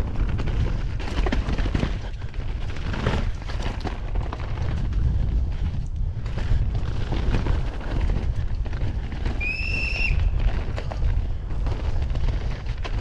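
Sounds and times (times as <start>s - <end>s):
bike rattling and knocking: 0.0s - 13.0s
wind rumble on microphone: 0.0s - 13.0s.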